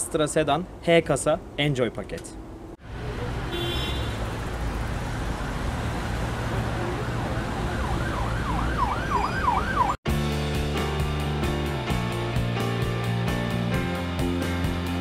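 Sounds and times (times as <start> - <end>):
street traffic rumble: 0.0 - 10.1
emergency siren yelping: 6.5 - 10.0
music: 10.1 - 15.0.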